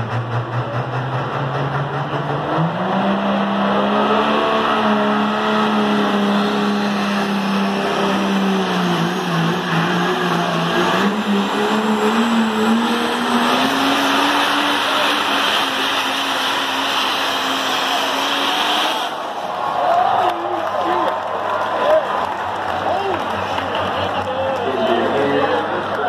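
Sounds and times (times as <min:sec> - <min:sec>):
diesel engine under full load: 0:00.0 - 0:26.0.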